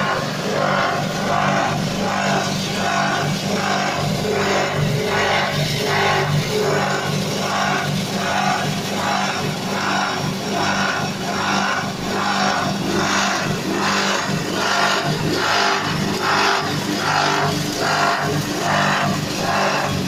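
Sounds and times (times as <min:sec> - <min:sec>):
grinder pulsing rush: 0:00.0 - 0:20.0
petrol engine drone: 0:00.0 - 0:20.0.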